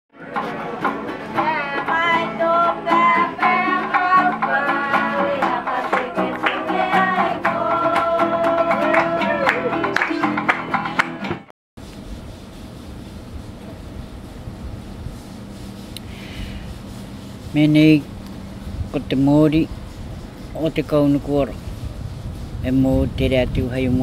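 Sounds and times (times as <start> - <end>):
plucked guitar music: 0.2 - 11.5.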